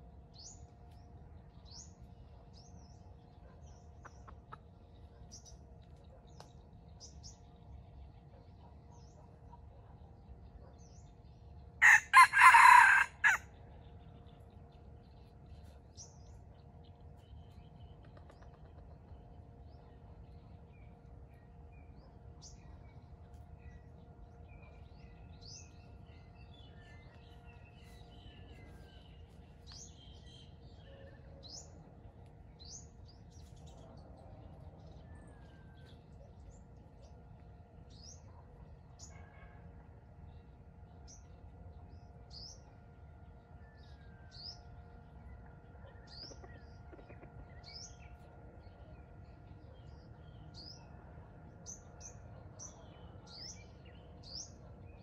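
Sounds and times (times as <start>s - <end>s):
faint steady hum: 0.0s - 55.0s
low outdoor background noise: 0.0s - 55.0s.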